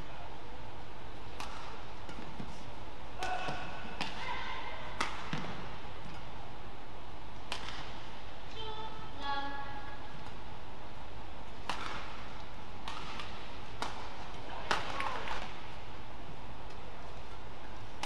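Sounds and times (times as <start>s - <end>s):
steady hall hum: 0.0s - 18.0s
racket striking shuttlecock: 1.3s - 2.5s, 3.2s - 4.2s, 4.9s - 6.3s, 7.4s - 8.0s, 11.6s - 15.6s.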